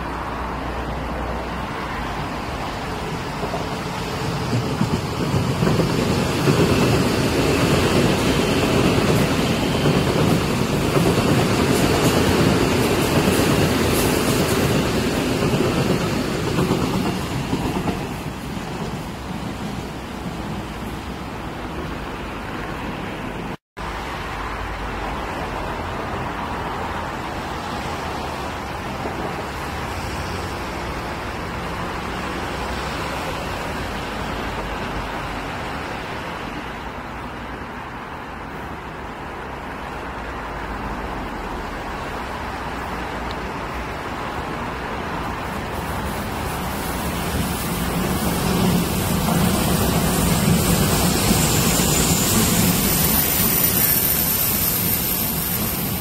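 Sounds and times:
electric train approaching: 0.0s - 23.4s, 41.1s - 56.0s
outdoor background noise: 0.0s - 56.0s
train wheels rumbling on rails: 0.0s - 56.0s.

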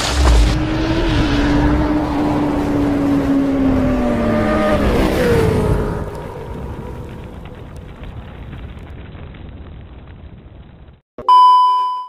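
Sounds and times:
motorcycle engine: 0.0s - 7.8s.

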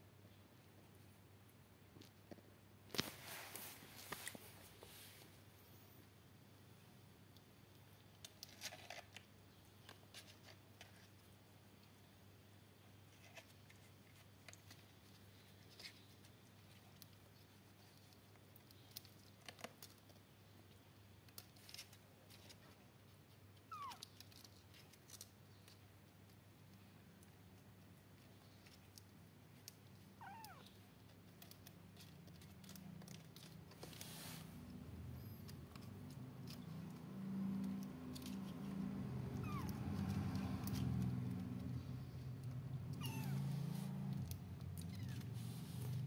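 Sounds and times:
clicks and scratches on bedding: 2.0s - 5.3s
kittens mewing: 30.2s - 30.7s, 39.2s - 40.4s, 42.8s - 45.4s.

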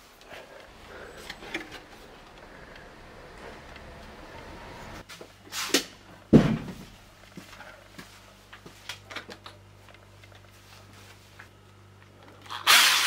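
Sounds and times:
things clattering being handled: 0.3s - 3.7s
heavy thump with low ring: 6.3s - 6.9s.

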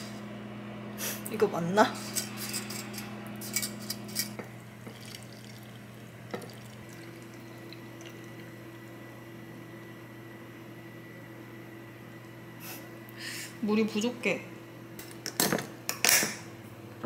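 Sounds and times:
liquid trickling into glass jar: 4.8s - 8.6s.

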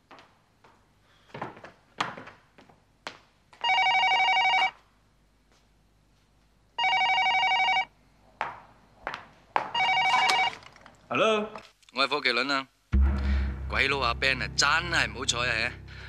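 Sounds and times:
telephone bell ringing: 3.6s - 4.8s, 6.8s - 7.9s, 9.7s - 10.6s
footsteps on hard floor: 8.4s - 10.0s.

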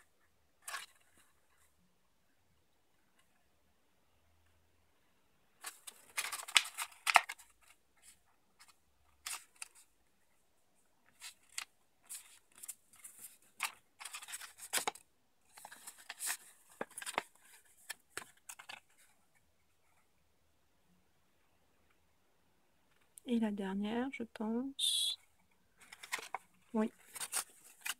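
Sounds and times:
paper crackling and rustling: 5.6s - 9.9s, 11.0s - 19.2s, 25.8s - 27.9s.

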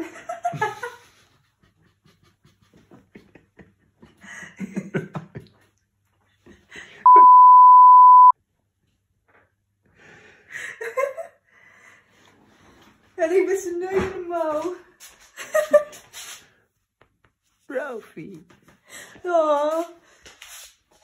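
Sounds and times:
high censor bleep: 7.1s - 8.3s
woman laughing: 15.4s - 16.0s.

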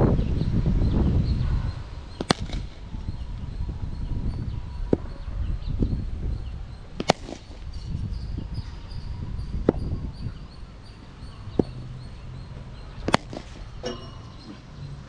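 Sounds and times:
cricket bat striking ball: 2.2s - 2.9s, 7.0s - 7.7s, 11.5s - 11.8s, 13.0s - 14.0s.

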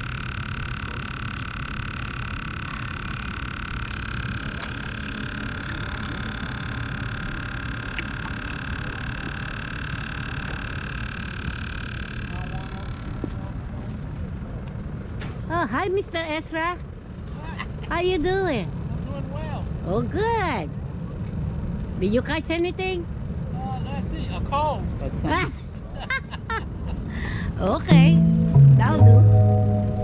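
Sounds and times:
motor hum with high whine: 0.0s - 16.1s.

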